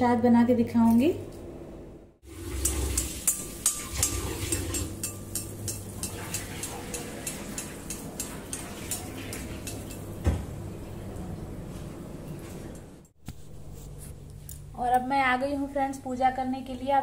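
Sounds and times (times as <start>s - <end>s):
batter frying in hot oil: 2.2s - 10.0s.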